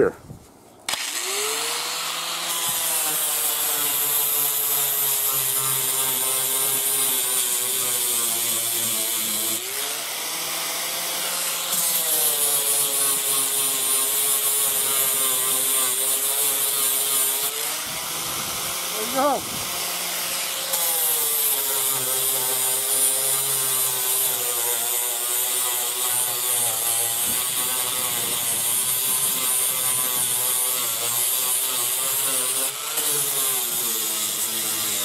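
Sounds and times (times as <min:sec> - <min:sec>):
angle grinder grinding filler: 0:00.9 - 0:35.0.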